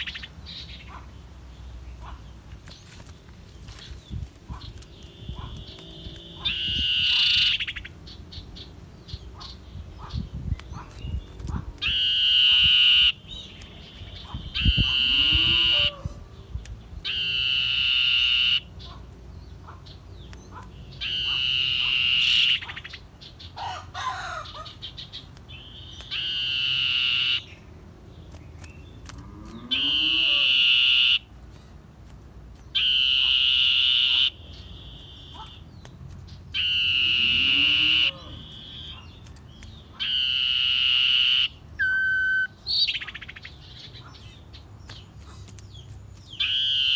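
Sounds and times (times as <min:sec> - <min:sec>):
faint lower bird calls: 0:03.6 - 0:11.2, 0:11.8 - 0:27.6, 0:28.6 - 0:31.3, 0:32.7 - 0:35.9, 0:36.5 - 0:46.9
bird whistled song: 0:04.5 - 0:07.9, 0:17.0 - 0:18.7, 0:20.2 - 0:23.0, 0:32.6 - 0:35.9, 0:36.5 - 0:46.9.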